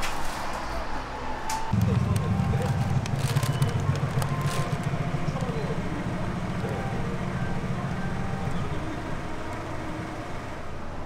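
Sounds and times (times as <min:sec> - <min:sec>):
low rumble of street traffic: 0:00.0 - 0:11.0.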